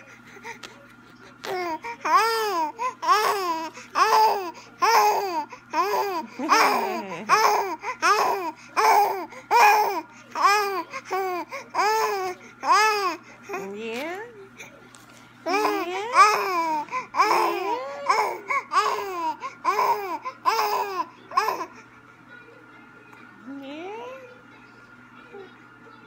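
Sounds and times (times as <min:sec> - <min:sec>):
baby cooing: 0:01.4 - 0:13.6, 0:15.5 - 0:21.8.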